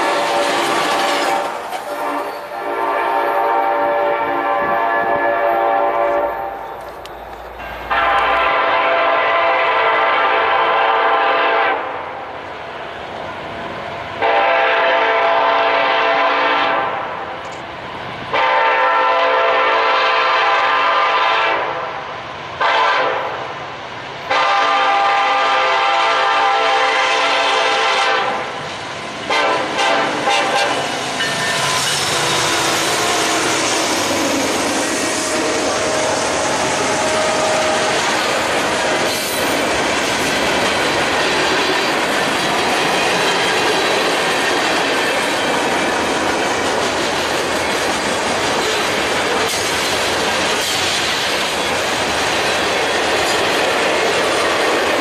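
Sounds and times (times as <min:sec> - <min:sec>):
train air horn blasts: 0:00.0 - 0:06.8, 0:07.9 - 0:12.0, 0:14.2 - 0:17.2, 0:18.3 - 0:22.0, 0:22.6 - 0:23.4, 0:24.3 - 0:28.5, 0:29.3 - 0:39.4
train wheels rumbling on rail: 0:00.0 - 0:55.0.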